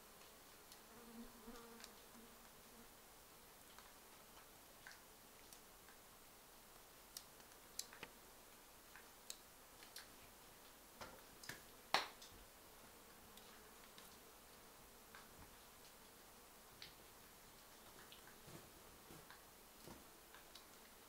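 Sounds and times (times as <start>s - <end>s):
faint clicks and snaps: 0.2s - 0.9s, 1.5s - 2.6s, 3.6s - 6.1s, 6.8s - 12.4s, 15.1s - 18.4s, 19.2s - 21.0s.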